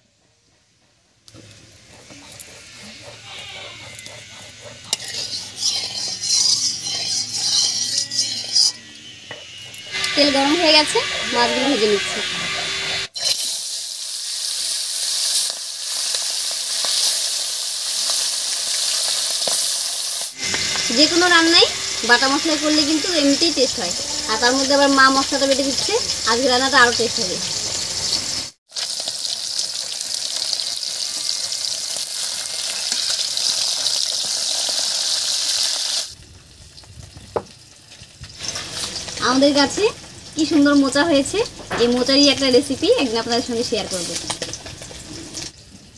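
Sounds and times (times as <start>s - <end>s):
metal spatula in wok: 1.4s - 28.4s, 38.4s - 39.9s, 41.7s - 45.6s
fish frying in oil: 9.8s - 45.9s.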